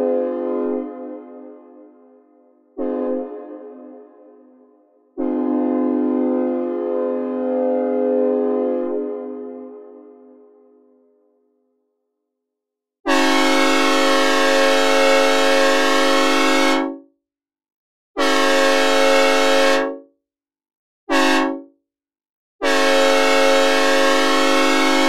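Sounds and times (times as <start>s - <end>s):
train horn blasts: 0.0s - 1.6s, 2.8s - 4.0s, 5.2s - 9.6s, 13.1s - 17.0s, 18.2s - 20.0s, 21.1s - 21.7s, 22.6s - 25.0s.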